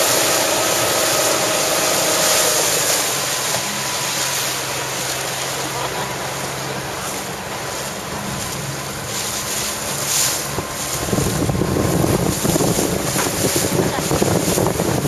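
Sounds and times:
choppy water: 0.0s - 15.0s
wind buffeting microphone: 7.6s - 15.0s.

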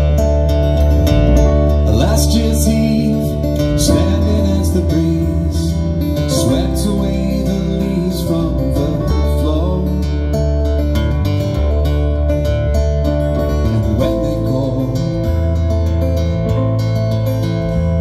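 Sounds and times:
bass guitar: 0.0s - 18.0s
strummed acoustic guitar: 0.0s - 18.0s
man singing: 1.8s - 10.6s, 13.5s - 15.8s.

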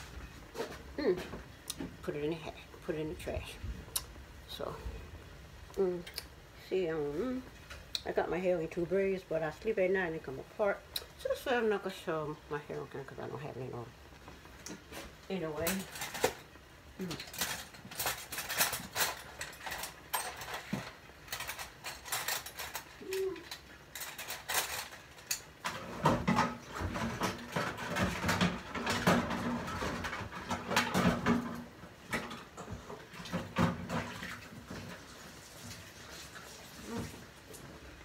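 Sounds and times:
clicks and knocks of pots and utensils: 15.6s - 16.5s, 17.1s - 35.0s.

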